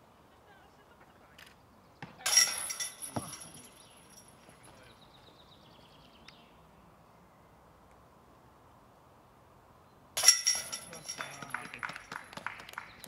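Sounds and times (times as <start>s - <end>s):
metal chains jangling: 2.3s - 4.7s, 10.2s - 11.6s.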